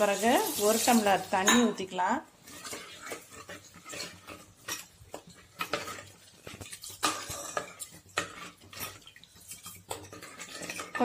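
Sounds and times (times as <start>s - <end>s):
steel ladle scraping clay pot: 2.4s - 11.0s.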